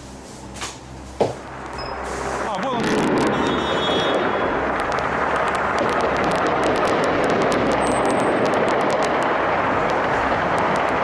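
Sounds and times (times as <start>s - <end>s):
drone engine overhead: 0.0s - 11.0s
short sharp cracks: 2.7s - 11.0s.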